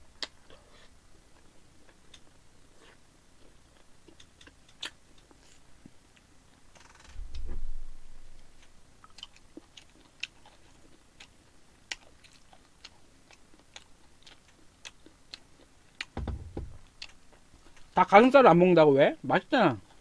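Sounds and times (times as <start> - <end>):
low bump: 7.2 - 8.4, 16.2 - 16.9
close chewing: 8.6 - 16.2.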